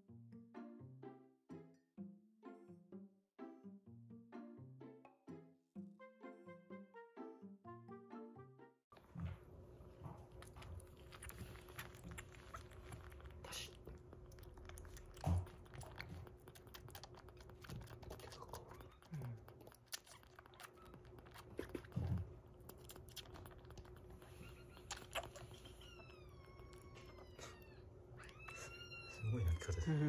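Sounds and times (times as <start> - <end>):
faint steady hum: 9.0 - 30.0
kitten suckling from bottle: 10.2 - 30.0.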